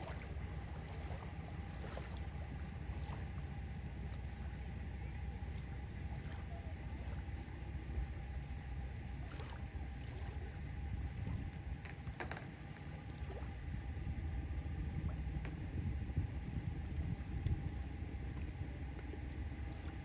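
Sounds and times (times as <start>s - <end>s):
motorboat engine idling: 0.0s - 20.0s.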